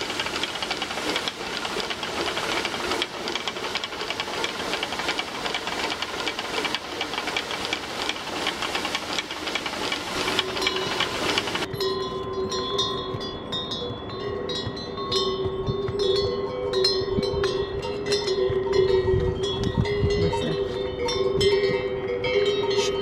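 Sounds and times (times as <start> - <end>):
steady rushing hiss: 0.0 - 11.7
harness bells jingling: 10.3 - 23.0.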